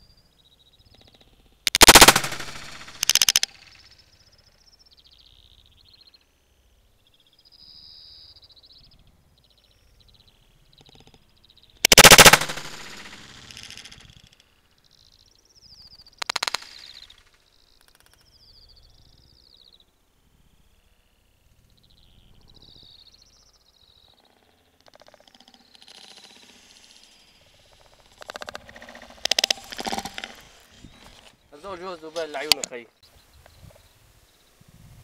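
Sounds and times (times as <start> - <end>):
gunshots: 1.7 - 3.5, 11.9 - 13.8
small birds chirping: 14.7 - 34.6.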